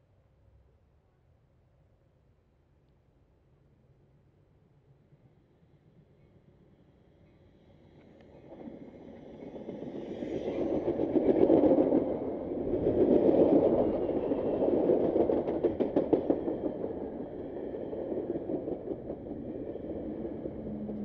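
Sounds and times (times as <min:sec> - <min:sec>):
train wheels rumbling on rail: 0:07.2 - 0:21.0.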